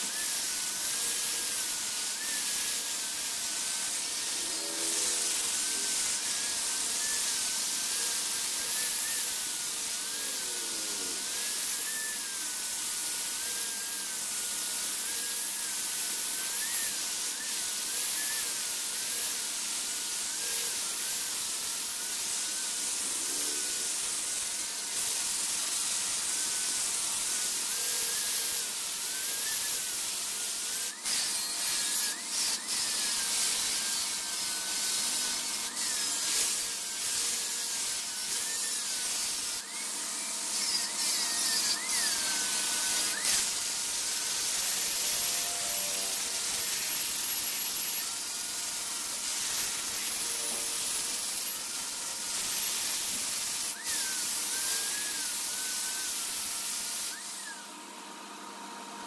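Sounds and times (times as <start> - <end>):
lathe tool scraping wood: 0.0 - 9.3, 22.0 - 57.6.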